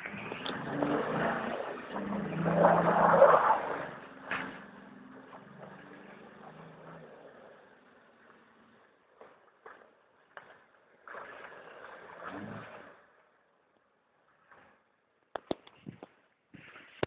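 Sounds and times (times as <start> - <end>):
car engine revving: 0.0 - 13.1
tyres spinning through snow: 0.0 - 13.4.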